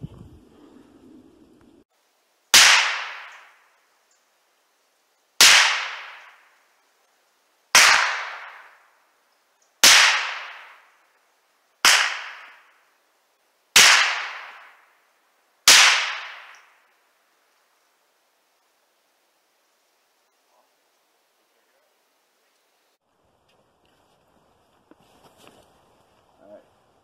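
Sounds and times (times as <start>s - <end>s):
rifle shots: 2.5s - 3.5s, 5.4s - 6.4s, 7.7s - 8.8s, 9.8s - 10.8s, 11.8s - 12.7s, 13.8s - 14.8s, 15.7s - 16.6s.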